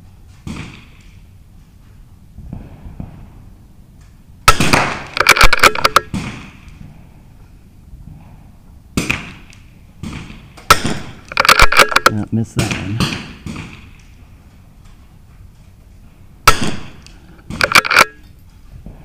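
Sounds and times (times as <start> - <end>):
rifle shots: 4.4 - 6.7, 9.0 - 14.0, 16.4 - 18.2.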